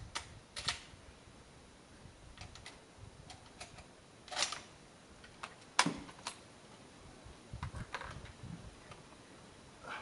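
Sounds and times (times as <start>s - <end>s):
sharp metallic rifle bolt clack: 0.1s - 0.9s, 2.4s - 4.7s.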